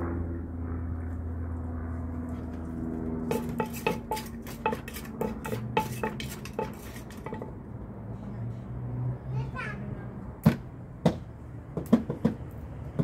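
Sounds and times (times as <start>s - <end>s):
steady low hum: 0.0s - 8.1s
pestle pounding in mortar: 3.3s - 7.6s, 11.8s - 12.4s.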